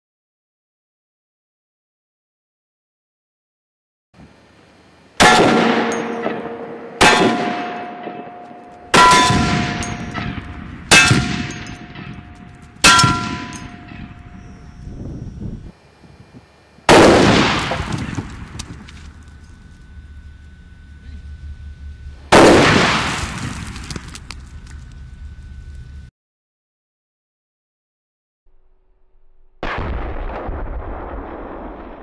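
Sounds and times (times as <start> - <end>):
rifle shots: 5.2 - 14.3, 16.9 - 18.8, 22.3 - 24.1
steel target plate clanging: 5.2 - 14.5.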